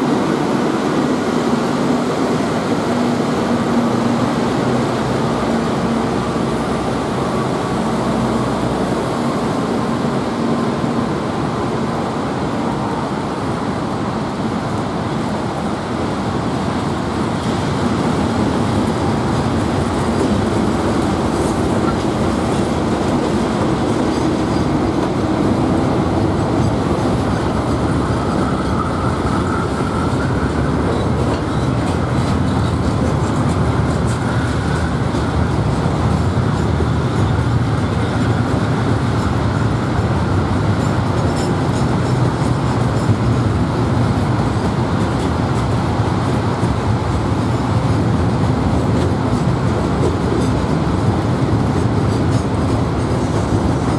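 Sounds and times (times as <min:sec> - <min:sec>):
freight train rolling past: 0:00.0 - 0:53.9
wheels clacking on rails: 0:00.0 - 0:53.9.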